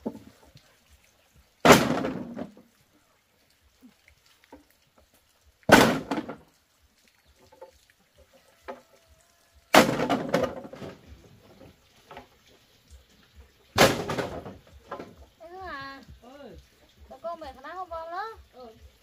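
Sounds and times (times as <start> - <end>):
bamboo tubes clattering: 0.0 - 2.8, 4.3 - 9.0, 9.7 - 15.6.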